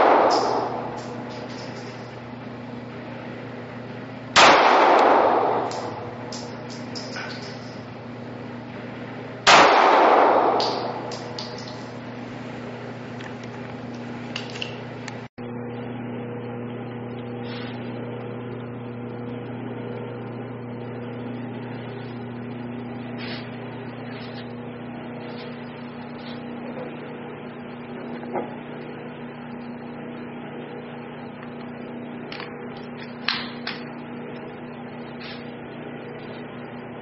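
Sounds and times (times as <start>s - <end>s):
pistol shot with echo: 0.0s - 2.2s, 4.4s - 7.8s, 9.5s - 11.9s
low hum: 0.0s - 37.0s.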